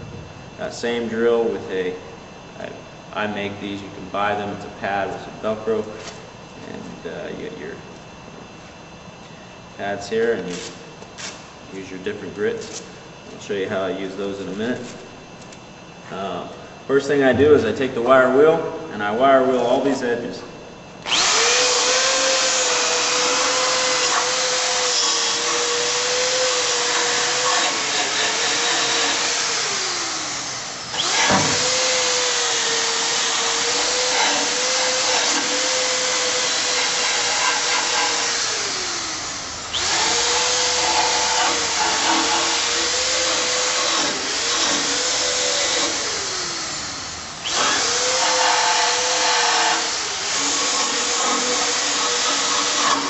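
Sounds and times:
drill motor whine: 0:21.0 - 0:53.0.

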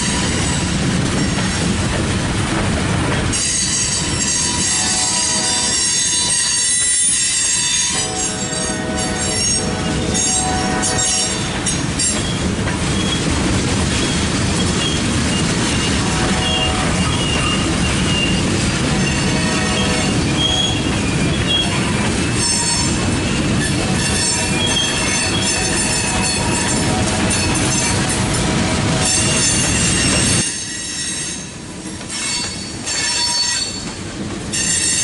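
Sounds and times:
freight train wheels rumbling on rails: 0:00.0 - 0:35.0
high-pitched wheel squeal: 0:19.0 - 0:23.0, 0:32.2 - 0:33.8.

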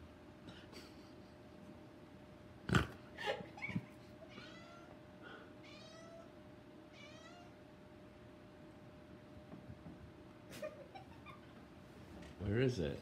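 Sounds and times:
cat chirping meows: 0:06.9 - 0:07.6.

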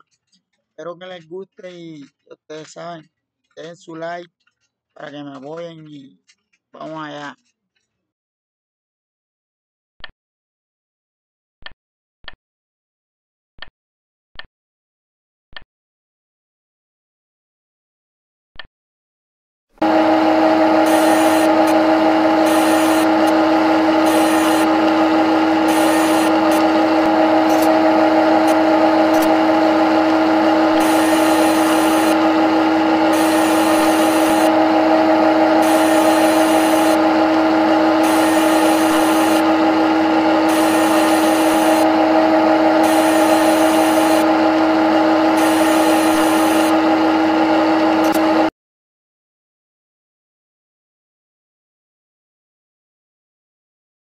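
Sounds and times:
lathe mechanical hum: 0:19.8 - 0:48.5.

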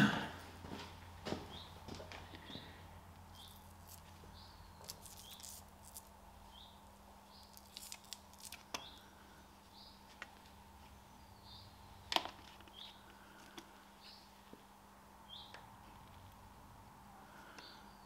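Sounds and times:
low electrical hum: 0:00.0 - 0:18.0.

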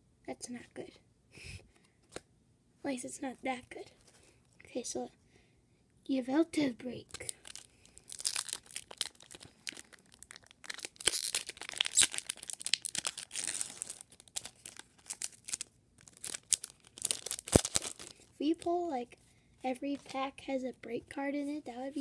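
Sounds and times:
foil wrapper tearing and crinkling: 0:07.1 - 0:18.2.

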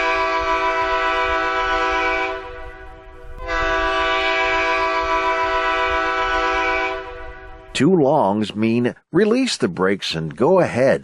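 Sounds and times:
locomotive air horn blasts: 0:00.0 - 0:07.8.

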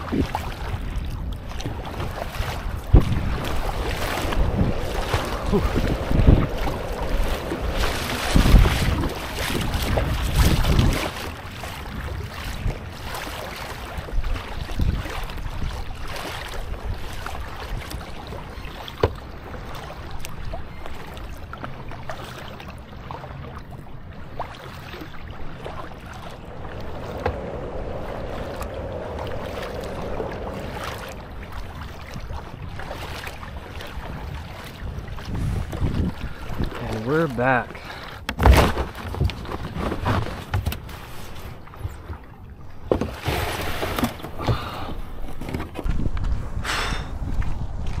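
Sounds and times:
wind buffeting microphone: 0:00.0 - 0:21.9, 0:23.7 - 0:37.9, 0:39.0 - 0:48.0
kayak paddle splashing in water: 0:00.0 - 0:48.0.

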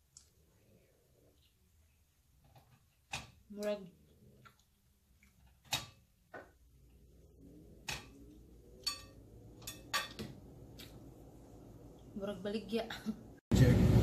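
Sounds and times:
knife and fork clinking on plate: 0:08.8 - 0:10.2.

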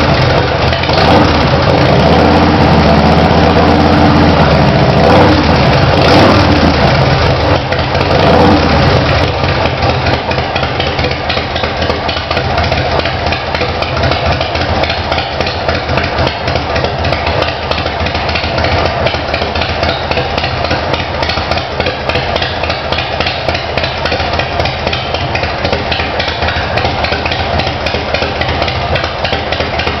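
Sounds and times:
motorcycle engine idling: 0:00.0 - 0:30.0
motorcycle throttle blips: 0:00.0 - 0:30.0.

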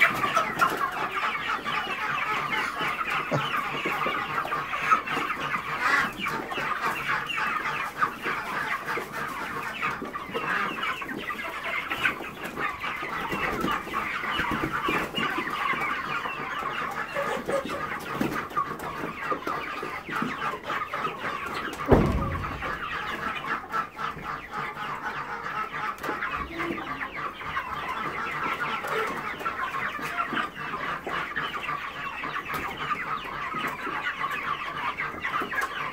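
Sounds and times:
chickens chattering: 0:00.0 - 0:35.9
low thump: 0:21.8 - 0:23.4.

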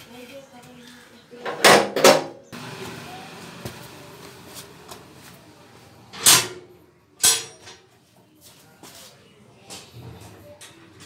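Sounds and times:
quiet shuffling movement: 0:08.0 - 0:09.5.

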